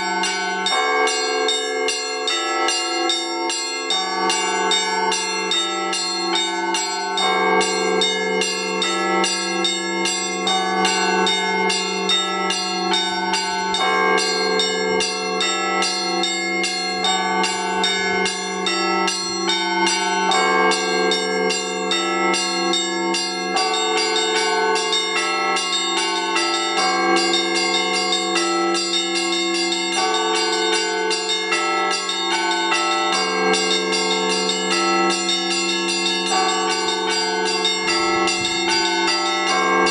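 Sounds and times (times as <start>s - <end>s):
church bells pealing: 0.0s - 39.9s
deep bell ringing: 0.0s - 39.9s.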